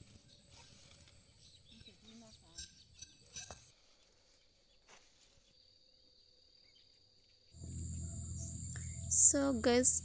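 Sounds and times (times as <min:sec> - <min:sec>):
insects calling: 0:05.6 - 0:10.0
low rumble: 0:07.6 - 0:10.0.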